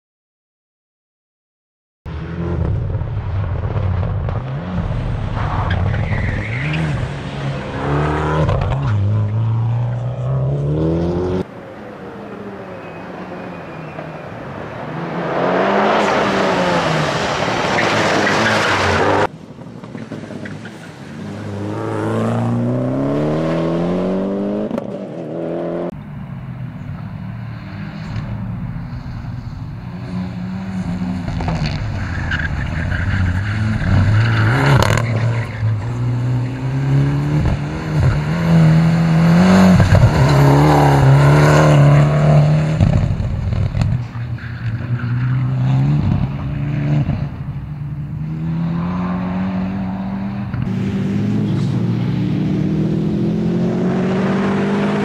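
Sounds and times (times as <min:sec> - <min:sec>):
car engine revving hard: 0:48.2 - 0:55.0.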